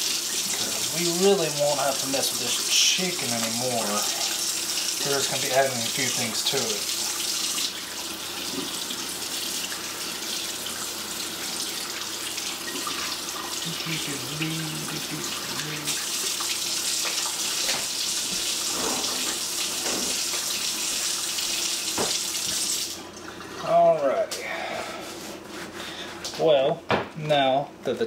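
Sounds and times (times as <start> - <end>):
faucet water splashing into sink: 0.0 - 23.6.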